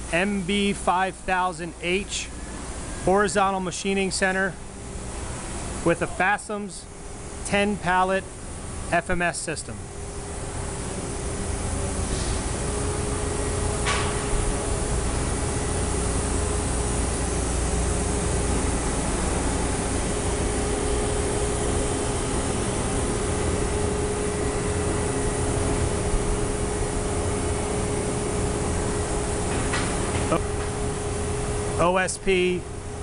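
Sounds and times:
constant mid-pitched whine: 0.0s - 33.0s
machine low rumble: 6.8s - 33.0s.

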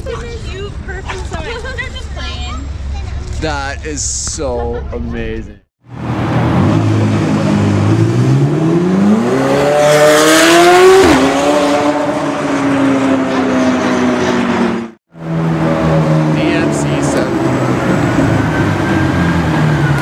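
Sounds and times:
sports car accelerating past: 5.9s - 20.0s.

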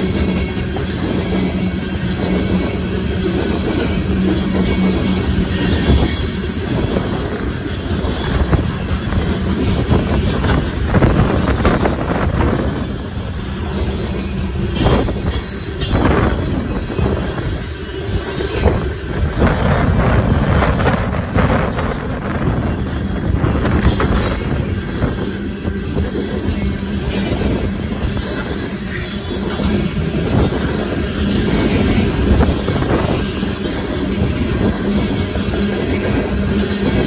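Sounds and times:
train wheels rumbling on rails: 0.0s - 37.0s
high wheel squeals: 3.7s - 9.8s, 12.8s - 18.9s.

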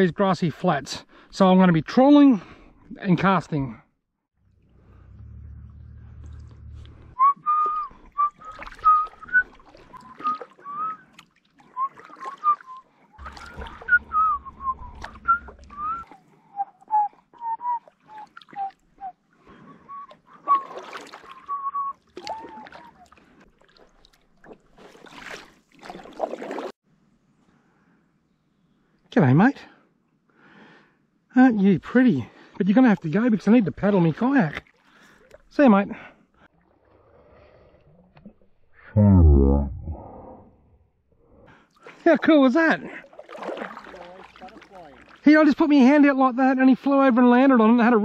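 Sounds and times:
person whistling a tune: 7.2s - 11.1s, 11.8s - 20.7s, 21.3s - 23.0s.

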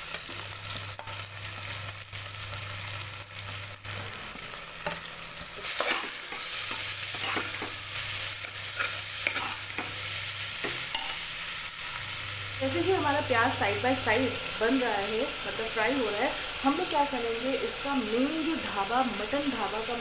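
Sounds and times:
onions sizzling in oil: 0.0s - 20.0s
spoon scraping and clinking pot: 4.8s - 7.8s, 8.4s - 10.0s, 10.6s - 11.3s.

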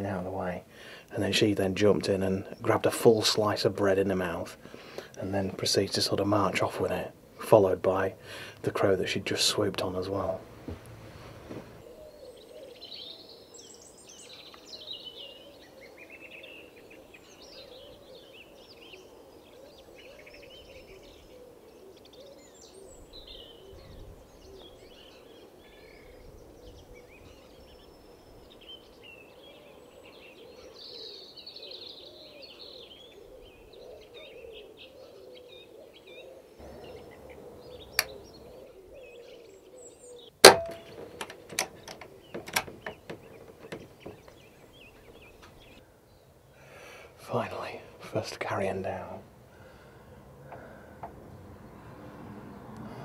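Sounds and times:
small birds singing and chirping: 0.0s - 53.0s
sharp click: 37.9s - 38.2s, 40.4s - 43.8s.

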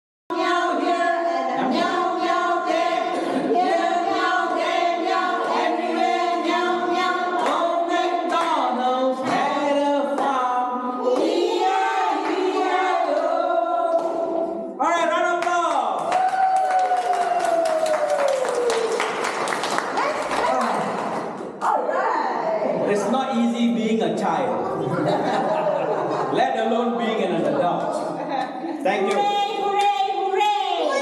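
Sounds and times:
children singing in chorus: 0.3s - 8.5s, 11.0s - 14.5s.

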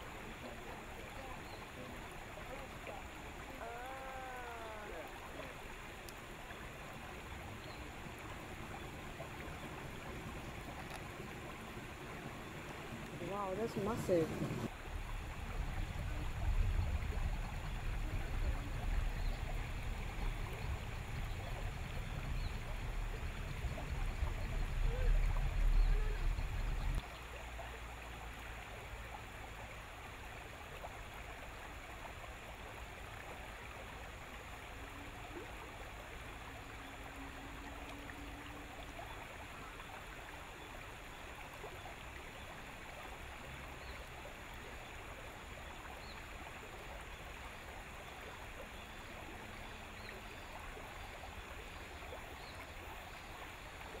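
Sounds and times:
river water flowing: 0.0s - 54.0s
low rumble: 8.6s - 27.0s.

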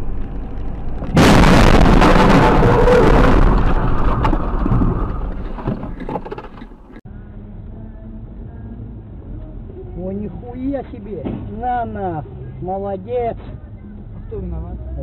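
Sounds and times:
vehicle crash: 0.0s - 6.9s
debris clattering: 0.5s - 7.0s.

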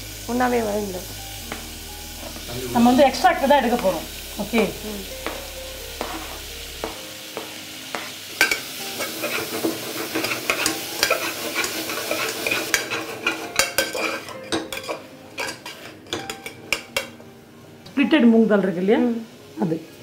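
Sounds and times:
vegetables sizzling in butter: 0.0s - 20.0s
spoon scraping and knocking pot: 7.9s - 17.2s.

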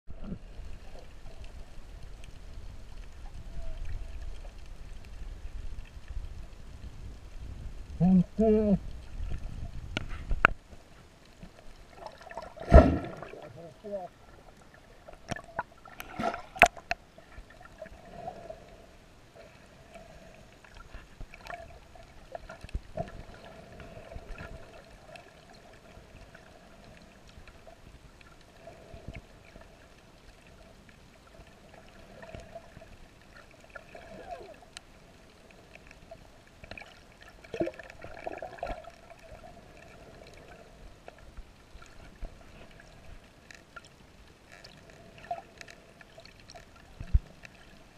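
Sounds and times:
underwater gurgling and bubbling: 11.8s - 43.9s.

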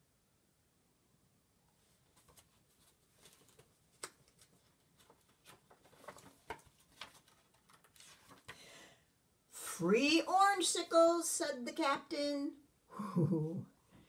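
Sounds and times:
paper rustling: 1.8s - 8.7s
book page turning: 1.9s - 8.6s.

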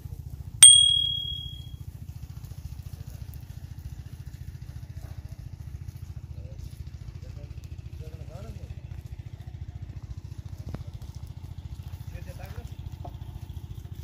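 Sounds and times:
bright bell-like chime: 0.6s - 1.6s.

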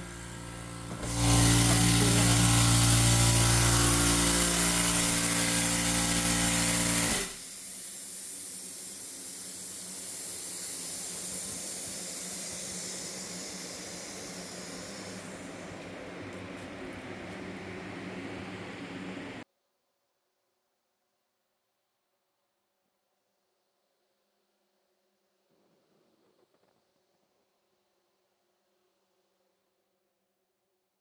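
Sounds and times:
machine motor humming and hissing: 0.0s - 19.4s.

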